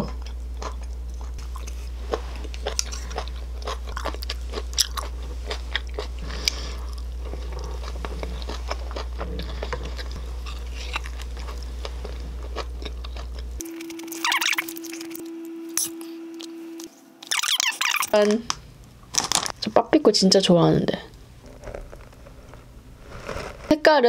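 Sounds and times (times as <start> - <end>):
person chewing food: 0.0 - 16.0
low hum: 0.0 - 23.7.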